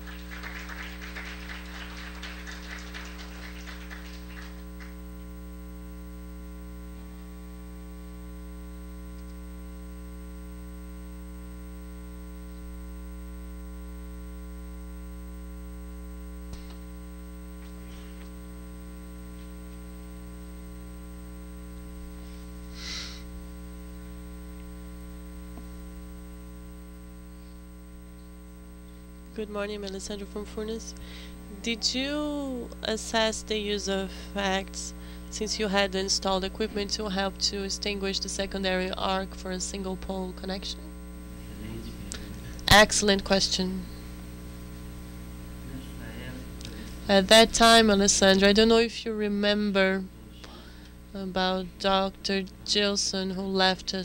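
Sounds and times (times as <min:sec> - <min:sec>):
electrical mains hum: 0:00.0 - 0:54.0.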